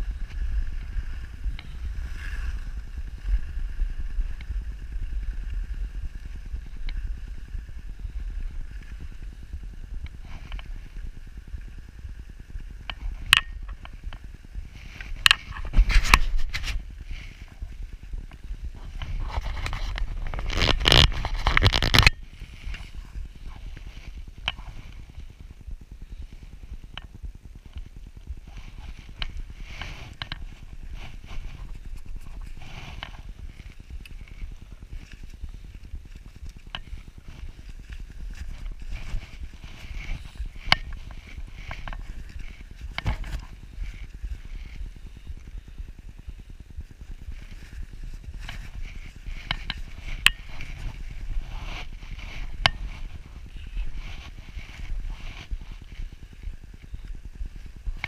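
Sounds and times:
wind on microphone: 0:00.0 - 0:58.0
skis scraping over snow: 0:47.4 - 0:58.0.

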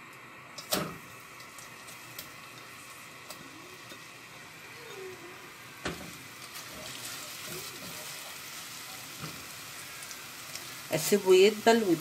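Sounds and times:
onion and garlic sizzling: 0:00.0 - 0:12.0.

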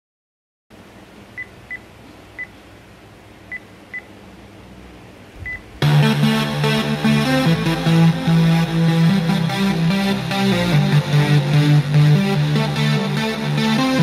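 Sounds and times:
music through speakers: 0:05.8 - 0:14.0.

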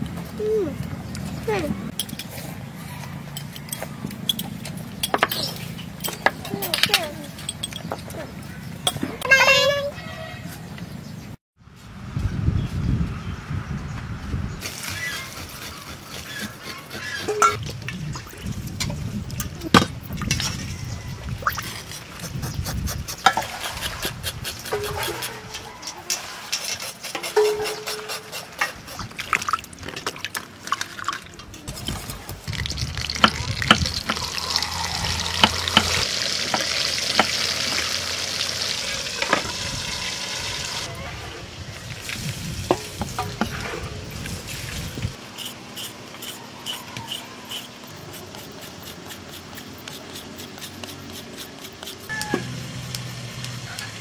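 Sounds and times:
carrot scraping on grater: 0:15.0 - 0:17.4, 0:45.4 - 0:52.1
fish sizzling in hot oil: 0:32.5 - 0:40.9.

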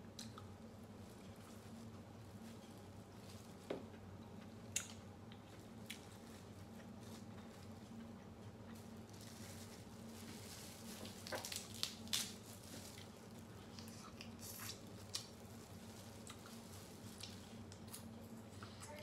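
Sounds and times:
faint low hum: 0:00.0 - 0:19.0
crab shells cracking: 0:11.2 - 0:12.4.

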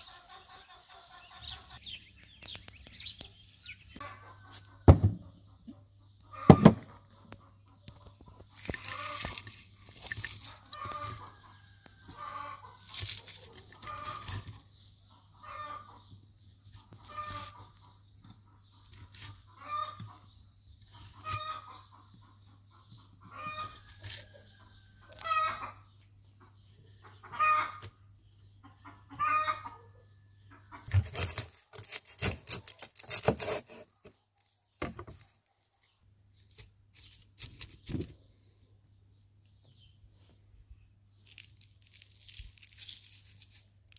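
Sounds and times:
chicken clucking: 0:00.0 - 0:01.9, 0:04.0 - 0:31.0
clicks and rustles of clay pot: 0:08.0 - 0:12.0, 0:41.2 - 0:43.9.

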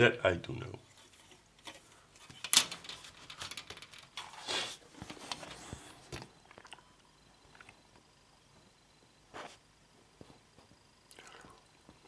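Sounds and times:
plastic clicks and rustling: 0:01.0 - 0:04.3.

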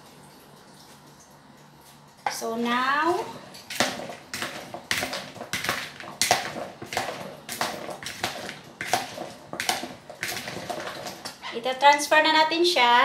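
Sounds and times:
wet rustling of vegetables: 0:03.1 - 0:11.8.

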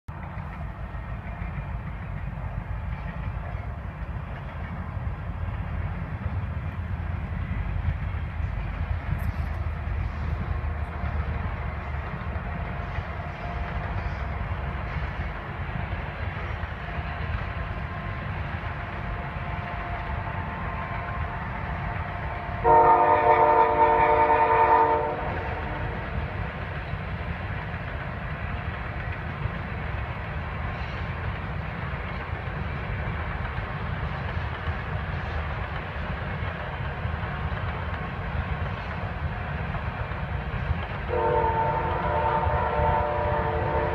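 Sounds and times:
freight train rumbling: 0:00.1 - 0:43.9
locomotive air horn: 0:19.6 - 0:26.0, 0:41.1 - 0:43.9.

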